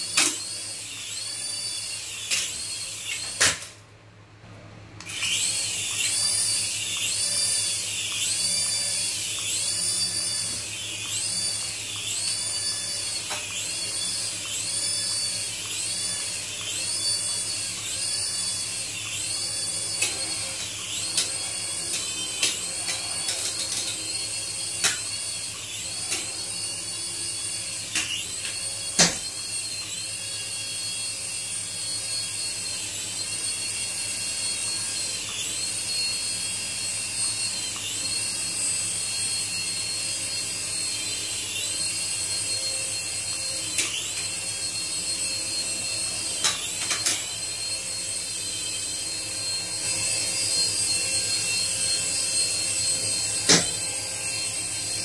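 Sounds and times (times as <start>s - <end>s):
toy helicopter rotors whining: 0.0s - 3.8s, 5.0s - 55.0s.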